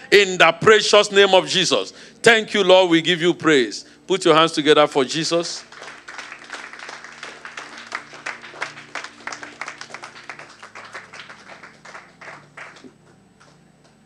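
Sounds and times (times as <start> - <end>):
congregation applauding: 5.2 - 13.7.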